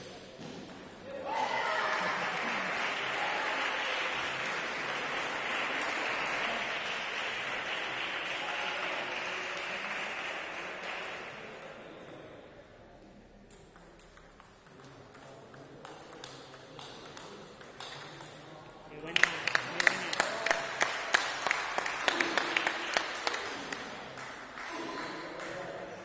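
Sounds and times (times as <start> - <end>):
spectators applauding: 1.3 - 11.3, 19.1 - 25.6.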